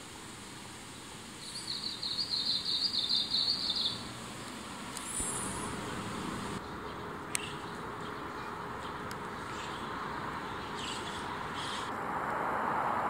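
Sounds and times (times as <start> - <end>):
background hiss: 0.0 - 11.9
bird singing high repeated notes: 1.4 - 4.1.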